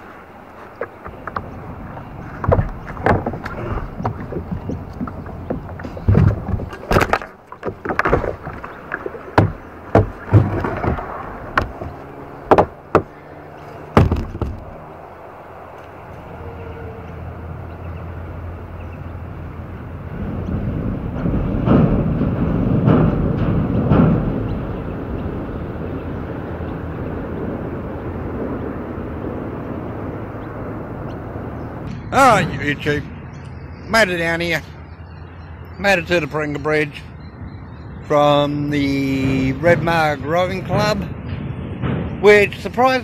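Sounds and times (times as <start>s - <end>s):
kayak paddle knocking on hull: 0.7s - 13.2s, 14.0s - 14.8s.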